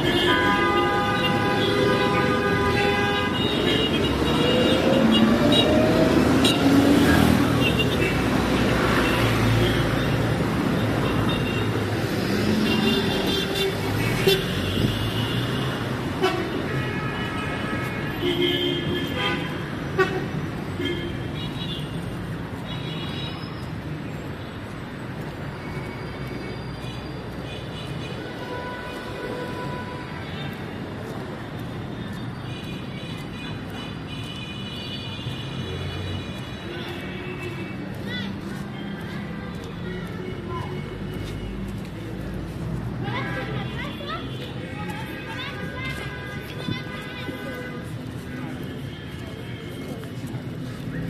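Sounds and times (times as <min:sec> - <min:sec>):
car horns tooting: 0:00.0 - 0:05.8
street traffic: 0:00.0 - 0:51.0.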